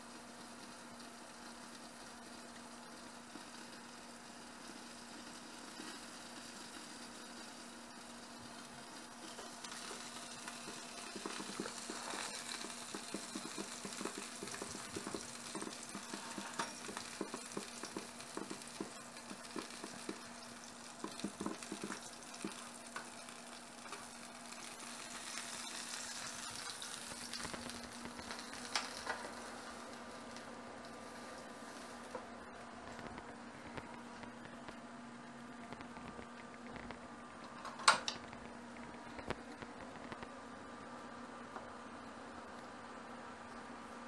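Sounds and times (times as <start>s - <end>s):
fish sizzling and crackling: 0.0s - 32.3s
steady low hum: 0.0s - 44.0s.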